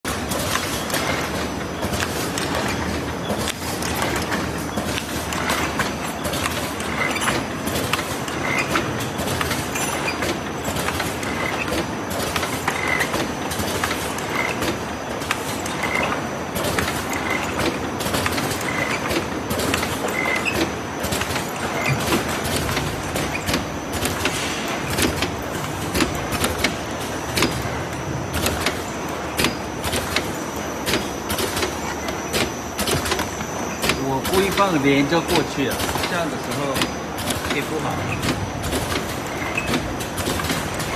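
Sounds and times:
machine clattering clicks: 0.1s - 40.9s.

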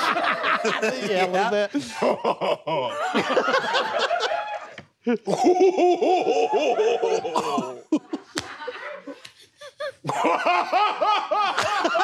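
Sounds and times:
man laughing theatrically: 0.0s - 8.4s, 9.6s - 12.0s.

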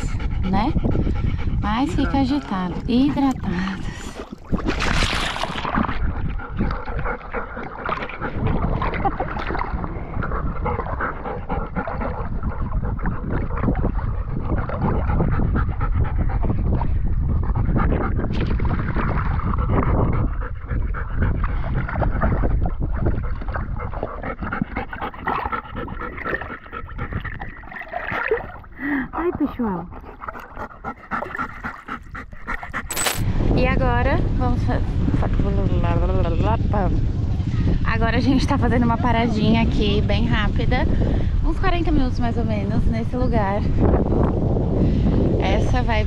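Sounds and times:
dogs panting hard: 0.0s - 4.6s, 6.0s - 33.3s.

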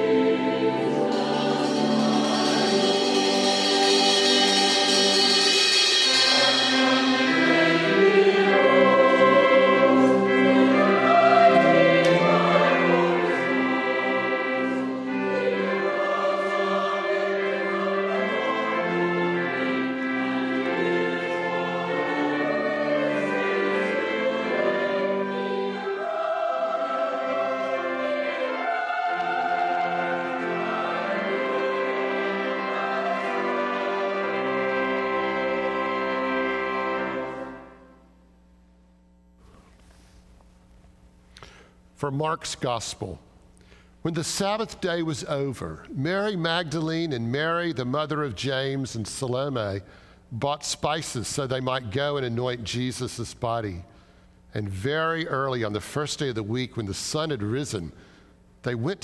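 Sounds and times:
choir singing slow piece: 0.0s - 38.0s.

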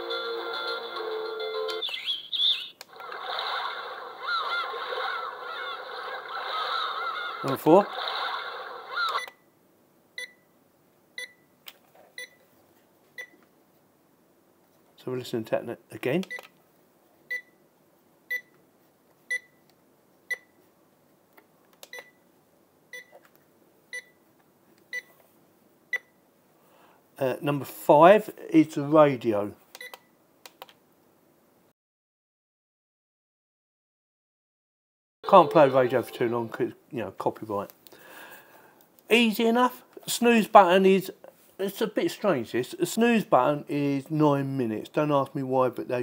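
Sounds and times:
alarm clock bird-call chirps: 1.6s - 2.8s.

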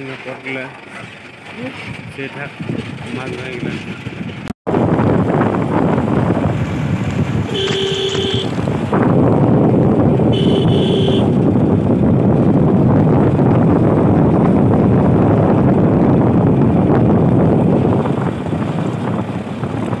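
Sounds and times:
tyre noise on paved road: 0.0s - 20.0s
wind buffeting microphone: 1.0s - 20.0s
vehicle horn: 7.5s - 8.6s, 10.2s - 11.4s.

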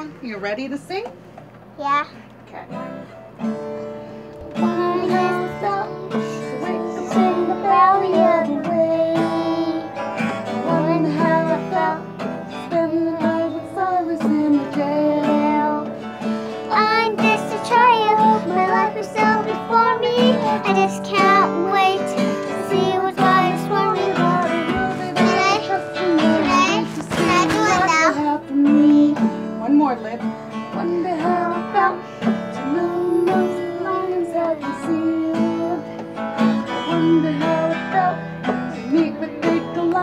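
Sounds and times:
guitar accompaniment: 1.0s - 40.0s
child singing: 4.5s - 12.0s, 12.6s - 15.9s, 16.7s - 29.3s, 32.6s - 35.9s, 36.7s - 38.2s, 38.9s - 40.0s.

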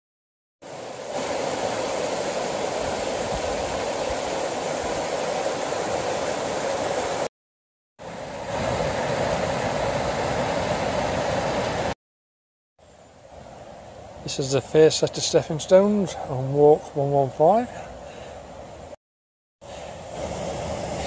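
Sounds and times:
river water rushing over weir: 0.6s - 7.3s, 8.0s - 12.0s
water tumbling down waterfall: 0.6s - 7.3s, 8.0s - 12.0s.

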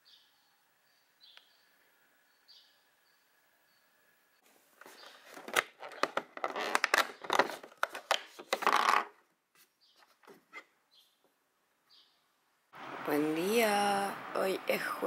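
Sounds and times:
cardboard tearing: 5.1s - 9.2s.

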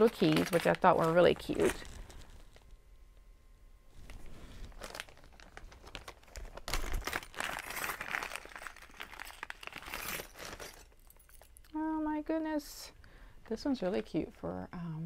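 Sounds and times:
packaging crinkling and tearing: 0.0s - 2.7s, 4.0s - 11.5s.

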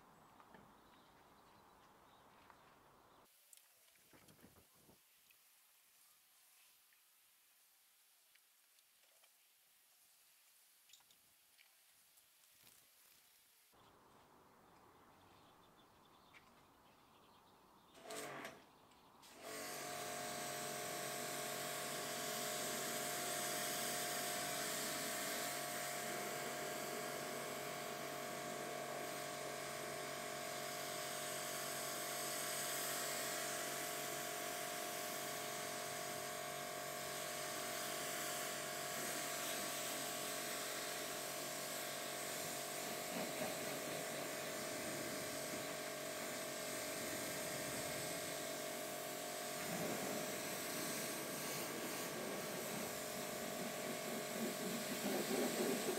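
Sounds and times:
water jet hissing: 19.2s - 55.9s
pressure washer motor whine: 19.4s - 55.9s.

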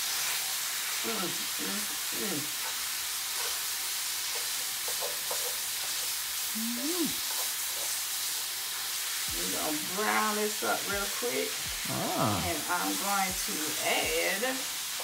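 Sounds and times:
meat sizzling in a skillet: 0.0s - 15.0s
fork scraping a pan: 2.6s - 6.2s, 7.2s - 8.9s.

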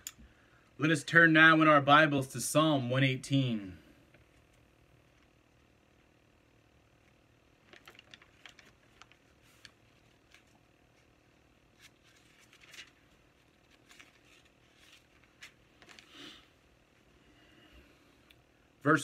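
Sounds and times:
thin pages flicking: 7.6s - 11.1s, 11.7s - 16.1s
pages swishing as turned: 11.7s - 16.2s.

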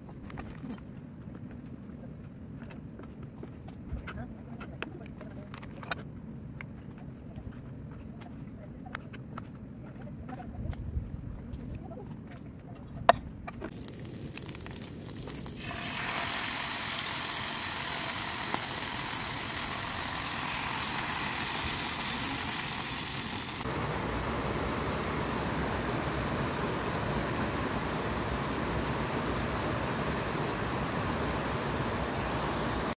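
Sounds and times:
sausage sizzling in a pan: 13.7s - 23.7s.

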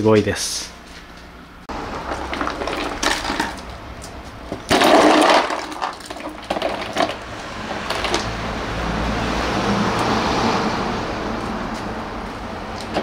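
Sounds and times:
ice crunching and rattling: 1.8s - 8.3s.

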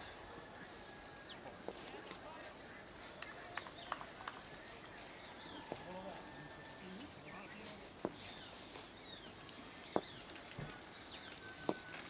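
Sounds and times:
small birds chirping: 6.8s - 12.0s.

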